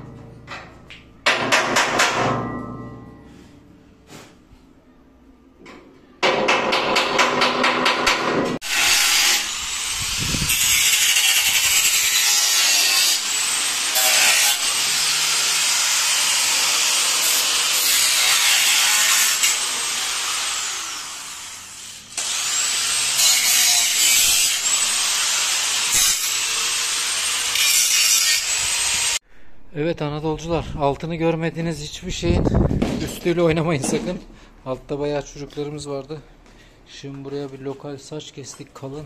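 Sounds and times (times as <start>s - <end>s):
angle grinder cutting sheet steel: 8.6s - 29.2s.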